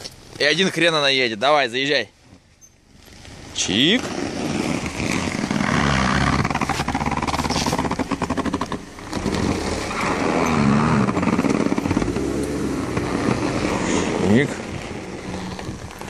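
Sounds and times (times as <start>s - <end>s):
tyres crunching on snow: 2.9s - 16.0s
car engine revving: 3.3s - 16.0s.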